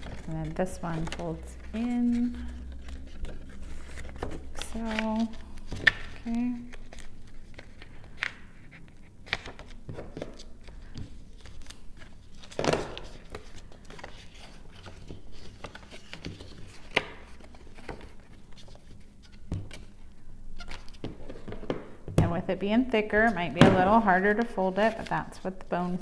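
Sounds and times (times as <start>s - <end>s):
cardstock rustling and folding: 0.0s - 21.9s, 23.0s - 26.0s.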